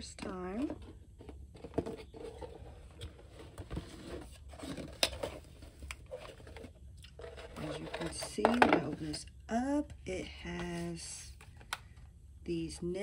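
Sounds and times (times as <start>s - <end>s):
cardboard scraping and rustling: 0.5s - 9.2s.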